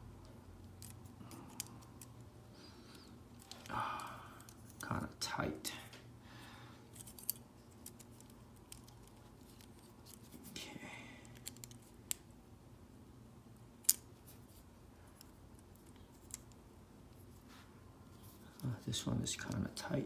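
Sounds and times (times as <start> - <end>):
plastic parts clicking and scraping: 11.2 - 12.2.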